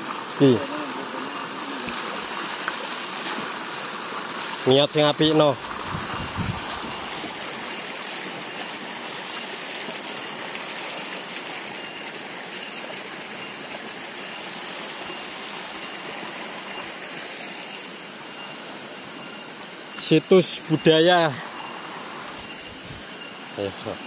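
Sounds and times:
water gushing onto rocks: 0.0 - 17.8.

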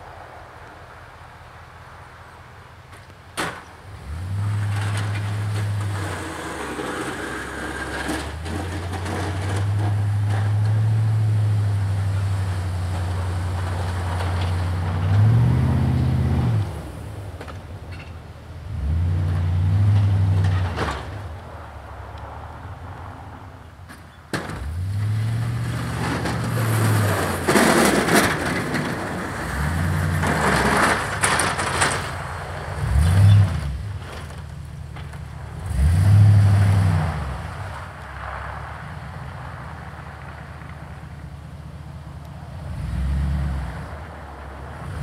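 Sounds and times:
plow pushing snow: 2.9 - 45.0
diesel truck engine revving: 3.9 - 17.2, 18.7 - 21.1, 24.6 - 34.1, 35.4 - 38.4.

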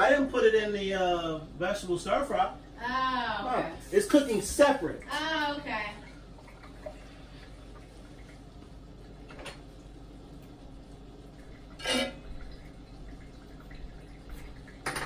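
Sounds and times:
faint steady background noise: 0.0 - 15.0
utensil clinking against dish: 11.8 - 12.3
kitchenware clatter: 11.8 - 12.5, 14.8 - 15.0.

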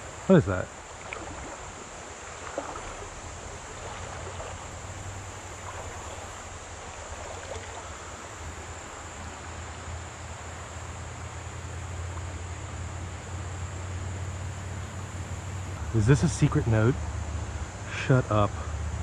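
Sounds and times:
creek water flowing: 0.0 - 19.0
wind rumble on microphone: 1.0 - 8.9.

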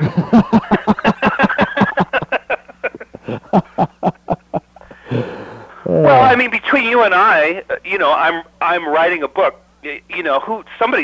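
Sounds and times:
hearty laughter: 0.0 - 5.1.

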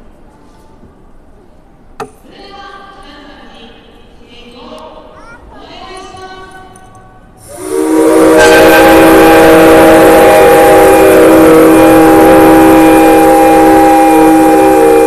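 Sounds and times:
train whistles sounding together: 7.4 - 15.0.

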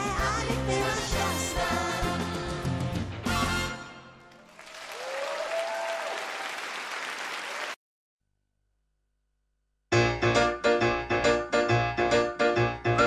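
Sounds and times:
audience applause: 4.3 - 7.8.

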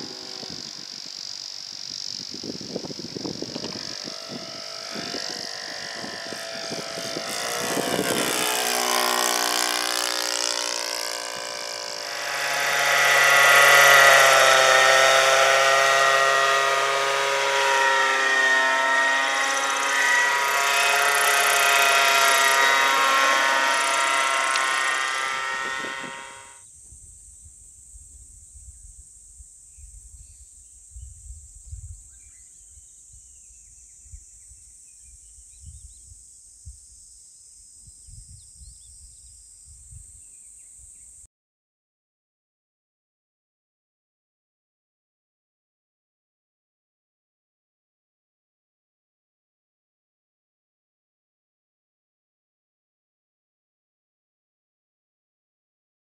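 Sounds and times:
model helicopter engine and rotor: 0.0 - 26.6.

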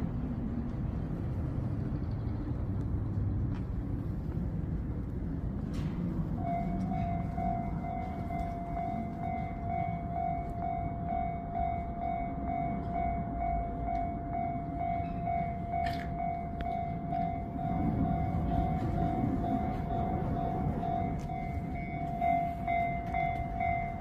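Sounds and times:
low train rumble: 0.0 - 24.0
level crossing bell ringing: 6.4 - 24.0.

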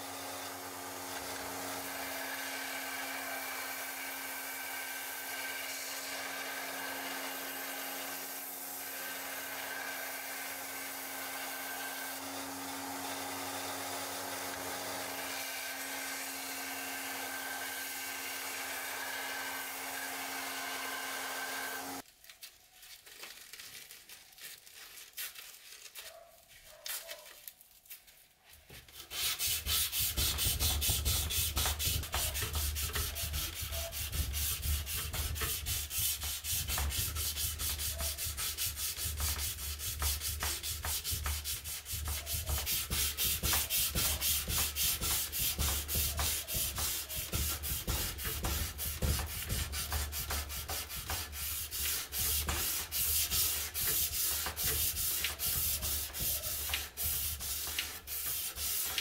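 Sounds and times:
belt grinder on steel blade: 0.0 - 22.0
sandpaper rubbing steel blade: 29.0 - 59.0.

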